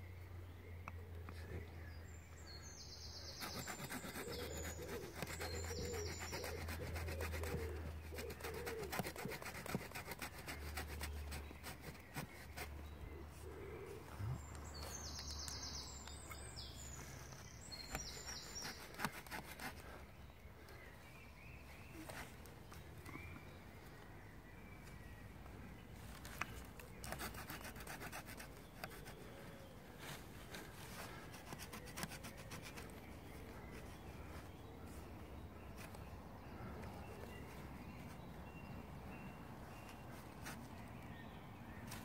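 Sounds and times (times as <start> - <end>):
birds singing: 0.0 - 42.0
hand saw cutting branch: 3.3 - 12.8, 17.2 - 19.9, 26.4 - 29.2, 30.9 - 32.9.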